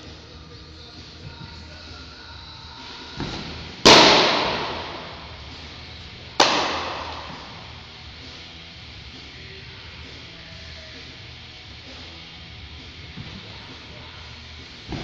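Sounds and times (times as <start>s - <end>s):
baseball popping into mitt: 3.2s - 5.5s, 6.3s - 7.8s.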